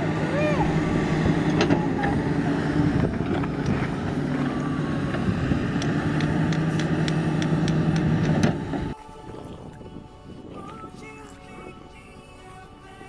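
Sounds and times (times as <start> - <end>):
excavator diesel engine humming: 0.0 - 9.0.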